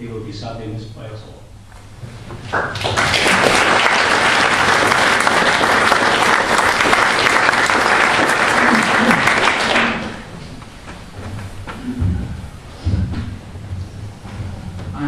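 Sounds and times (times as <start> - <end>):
audience applauding: 2.4 - 10.4.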